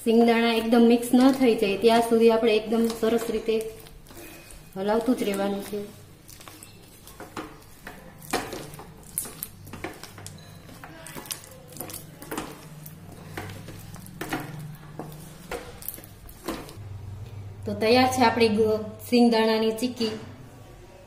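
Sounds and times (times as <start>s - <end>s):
wooden spatula scraping a pan: 0.1s - 16.8s.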